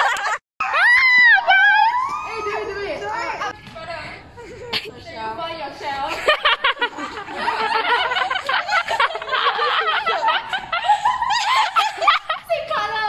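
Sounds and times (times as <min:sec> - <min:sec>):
teenagers laughing: 0:06.0 - 0:13.0.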